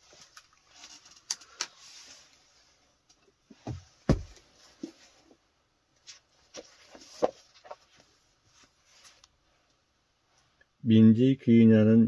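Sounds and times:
knocks and handling sounds: 3.0 - 9.8
heavy thump: 3.6 - 4.4.

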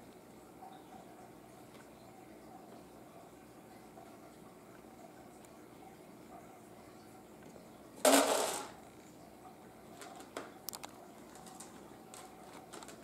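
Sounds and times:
dry cat food rattling: 8.0 - 8.8, 10.0 - 13.0.

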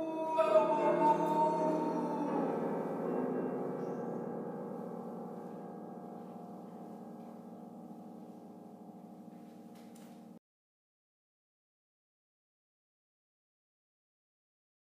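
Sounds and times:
gong-like metal percussion ringing: 0.0 - 10.4.

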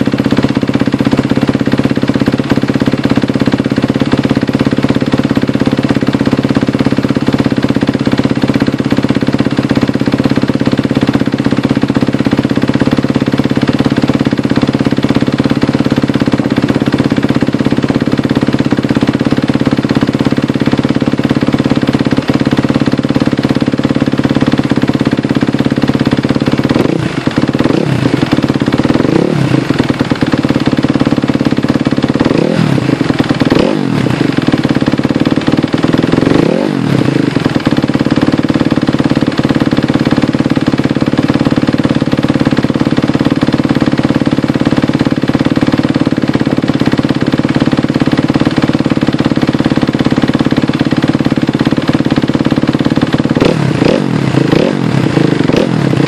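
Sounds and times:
motorcycle engine idling: 0.0 - 56.0
engine revving in throttle blips: 26.7 - 30.1, 32.2 - 34.3, 35.9 - 38.3, 53.2 - 56.0.

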